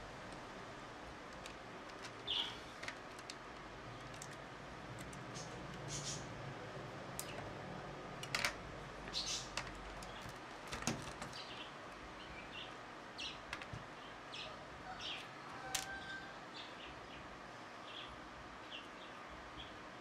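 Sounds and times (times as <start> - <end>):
birds chirping: 2.0 - 2.9, 5.2 - 6.4, 9.0 - 20.0.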